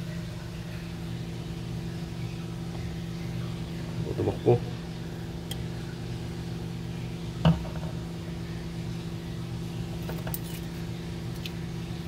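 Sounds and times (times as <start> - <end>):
steady low hum: 0.0 - 12.0
knock on glass terrarium: 7.4 - 8.0.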